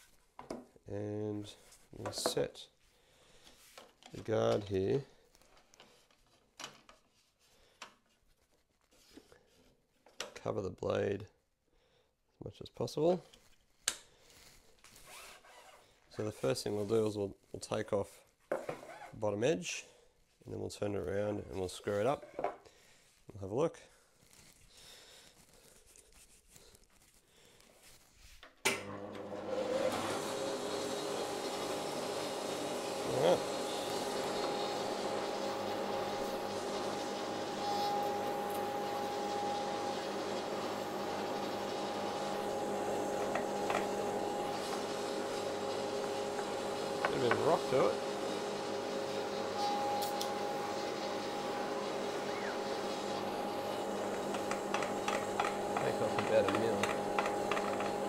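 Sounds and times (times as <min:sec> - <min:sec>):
planer motor humming: 0:28.8 - 0:58.0.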